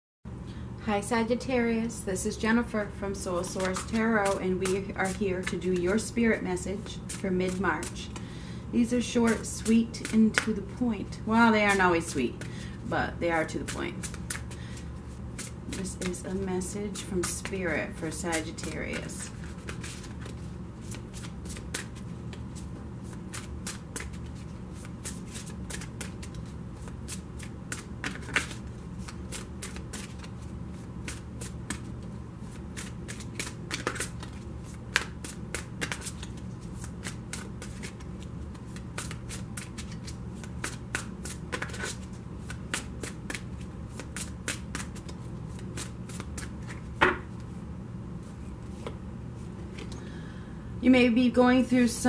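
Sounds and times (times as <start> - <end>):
cards being shuffled: 3.4 - 8.2, 13.4 - 47.6, 48.2 - 50.0.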